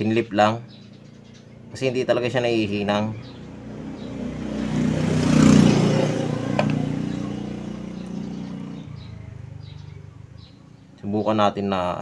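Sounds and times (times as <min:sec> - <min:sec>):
vehicle driving past: 0:03.0 - 0:11.0.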